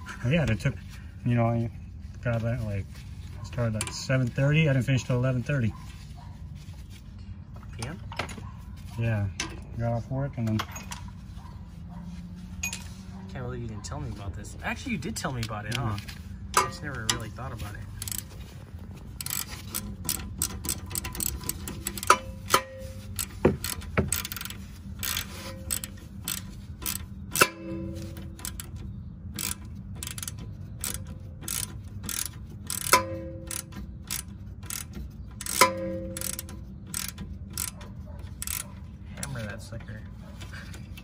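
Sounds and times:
metallic clanks: 0:16.5 - 0:17.4, 0:19.2 - 0:39.4
ratchet clicking: 0:16.5 - 0:18.4, 0:19.0 - 0:39.4.

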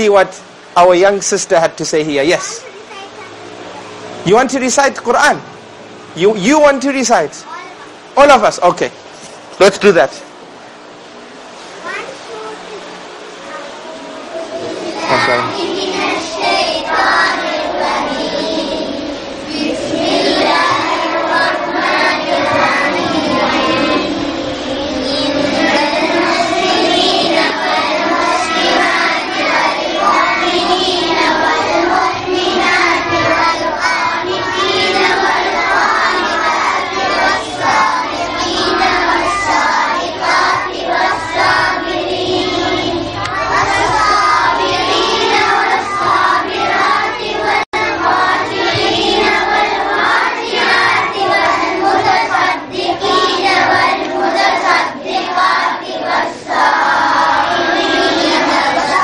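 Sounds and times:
children reciting in unison: 0:13.6 - 0:59.0.

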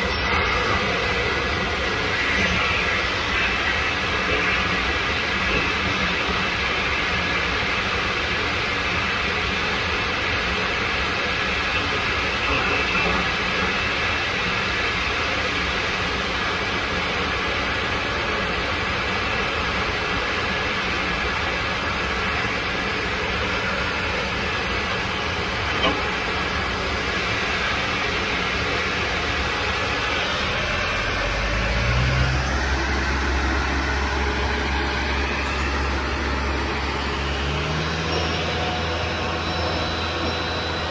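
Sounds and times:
high whine of jet engines: 0:00.0 - 0:40.9
tug engine running: 0:00.0 - 0:40.9.

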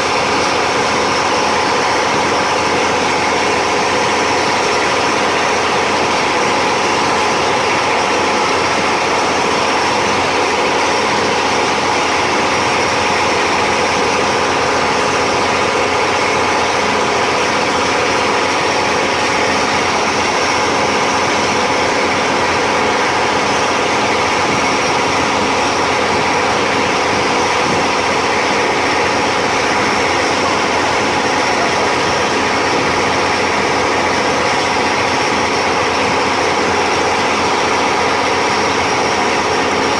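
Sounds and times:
motorboat engine running: 0:00.0 - 0:39.9
wake rushing along hull: 0:00.0 - 0:39.9.

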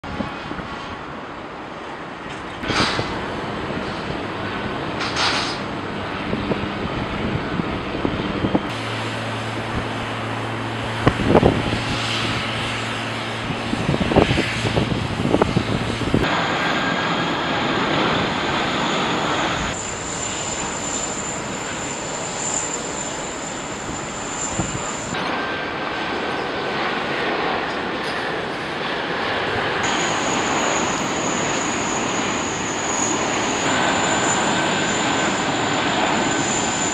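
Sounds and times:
jet engine roar: 0:00.0 - 0:36.9.

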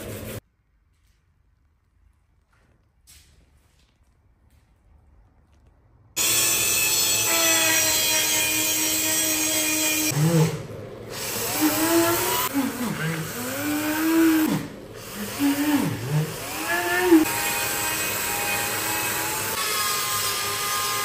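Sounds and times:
rotary tool whining: 0:06.2 - 0:19.6.

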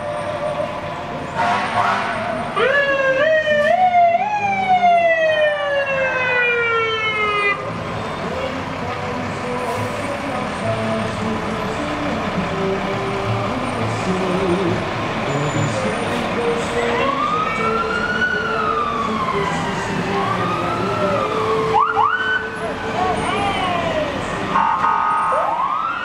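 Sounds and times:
fire truck engines running: 0:00.0 - 0:26.0
siren wailing: 0:02.6 - 0:07.6, 0:16.8 - 0:26.0.

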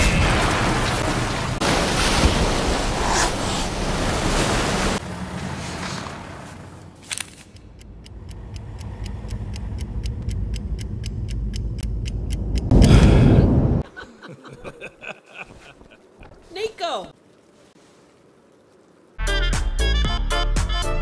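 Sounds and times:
fast even ticking: 0:07.5 - 0:12.9.

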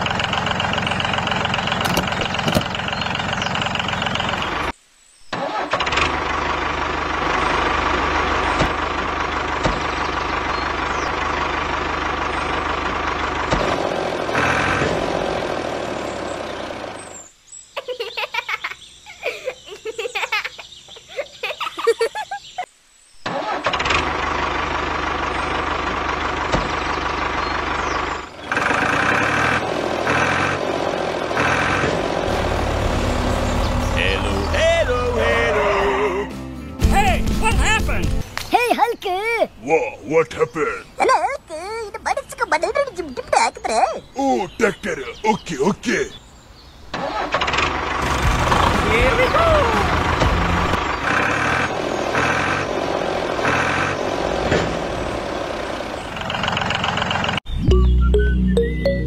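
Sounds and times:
tractor engine running: 0:00.0 - 0:04.8, 0:05.4 - 0:17.3, 0:23.2 - 0:39.4, 0:46.9 - 0:59.0.

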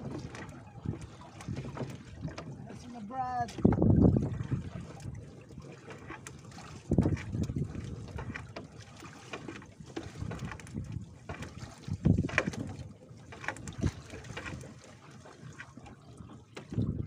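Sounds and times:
water splashing and sloshing: 0:00.0 - 0:17.0.

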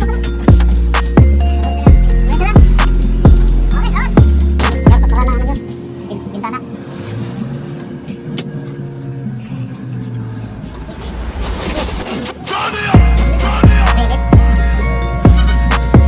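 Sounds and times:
engine and road noise in car: 0:01.9 - 0:12.3.

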